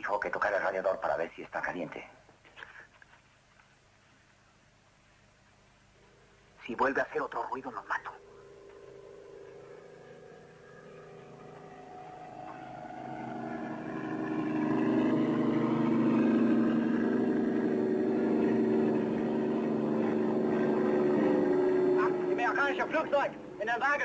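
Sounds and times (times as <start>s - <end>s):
vehicle engine running: 7.8s - 24.0s.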